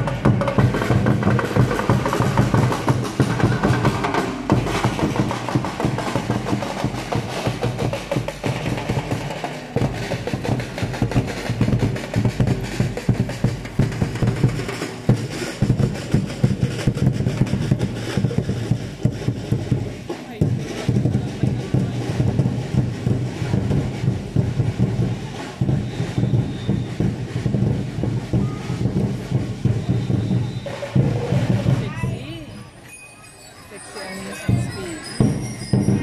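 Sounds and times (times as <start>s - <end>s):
marching drums playing: 0.0s - 32.7s, 33.8s - 36.0s.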